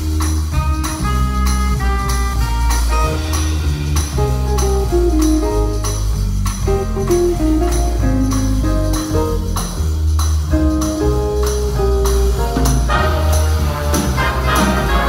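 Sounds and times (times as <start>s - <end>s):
drum kit with cymbal strokes: 0.0s - 15.0s
low bass notes: 0.0s - 15.0s
horns playing: 0.6s - 3.9s, 12.9s - 15.0s.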